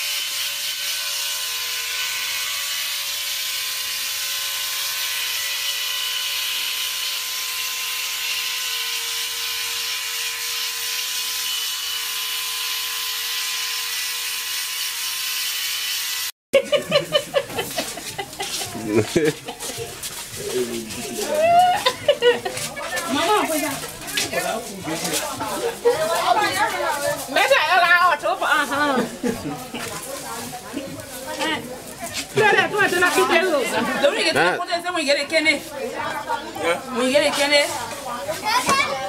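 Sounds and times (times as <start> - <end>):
electric hair clipper buzzing: 0.0 - 16.3.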